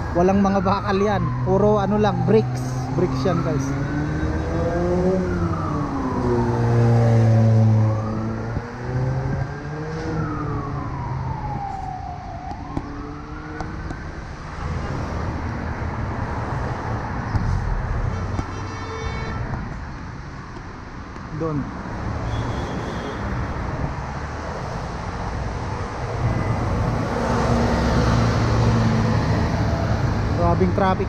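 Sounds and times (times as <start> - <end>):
siren wailing: 0.0 - 14.3, 25.6 - 30.2
street traffic noise: 0.0 - 31.0.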